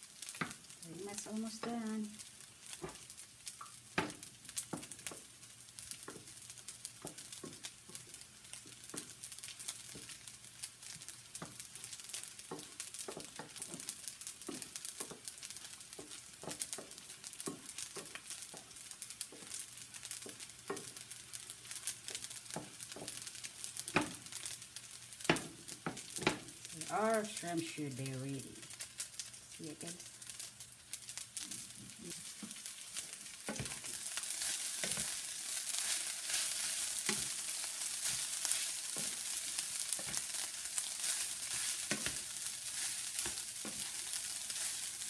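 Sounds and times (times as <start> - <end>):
shrimp sizzling in a frying pan: 0.0 - 45.0
wooden spoon scraping a pan: 10.8 - 21.0, 31.4 - 45.0.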